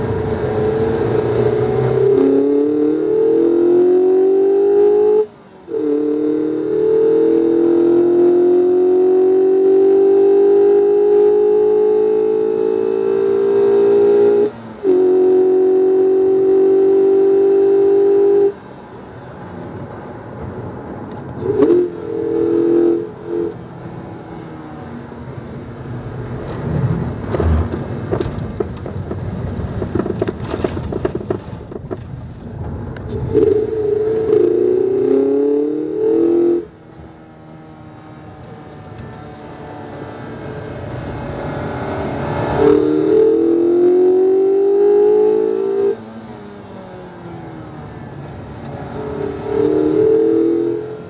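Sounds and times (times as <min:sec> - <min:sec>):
engine revs: 0:00.0 - 0:18.6, 0:21.4 - 0:23.6, 0:33.1 - 0:46.6, 0:47.7 - 0:51.0
car engine at full throttle: 0:00.0 - 0:51.0
road and tyre noise: 0:00.0 - 0:51.0.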